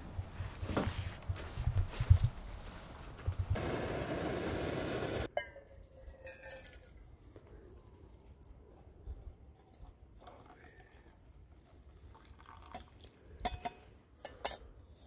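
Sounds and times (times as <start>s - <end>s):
moka pot hissing: 3.6s - 5.3s
coffee pouring into metal mug: 9.1s - 13.2s
metal clink: 13.5s - 14.6s.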